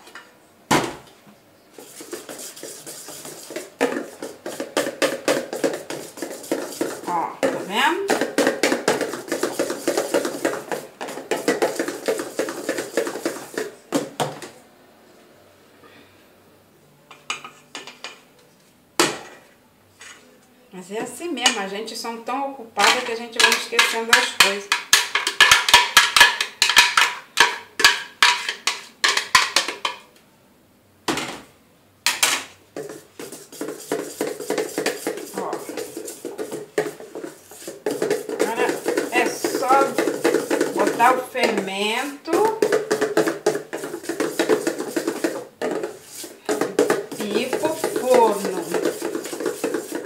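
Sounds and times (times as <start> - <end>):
spatula scraping plastic blender jar: 1.8 - 13.8, 32.8 - 50.0
whisk clicking against metal bowl: 22.8 - 30.0, 32.8 - 41.7, 42.3 - 50.0.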